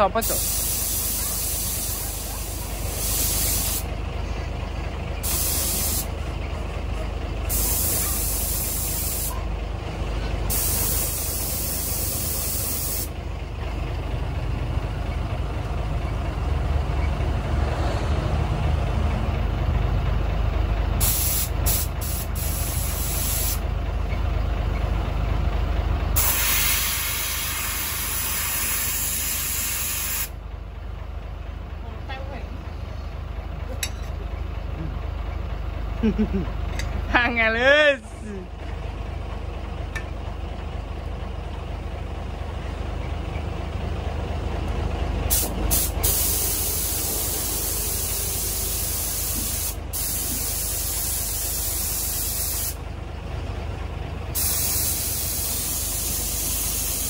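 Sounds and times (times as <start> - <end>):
spray gun air hissing: 0.2 - 3.9, 5.2 - 6.1, 7.5 - 9.4, 10.5 - 13.1, 21.0 - 23.6, 26.2 - 30.3, 45.3 - 52.8, 54.4 - 57.0.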